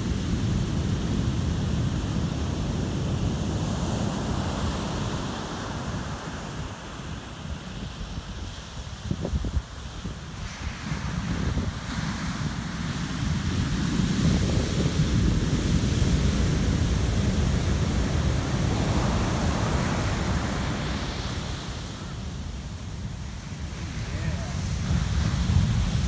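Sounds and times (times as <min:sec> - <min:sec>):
wind rumbling on microphone: 0:00.0 - 0:26.0
surf waves breaking: 0:09.7 - 0:26.0.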